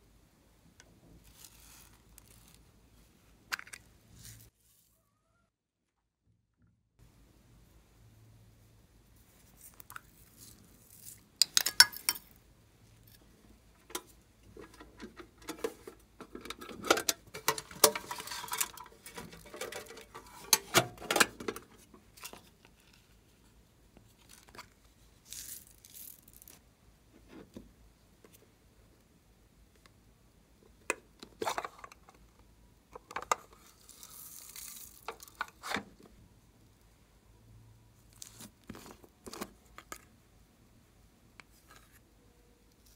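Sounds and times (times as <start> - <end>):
rustling rattling and scraping: 13.8 - 23.0.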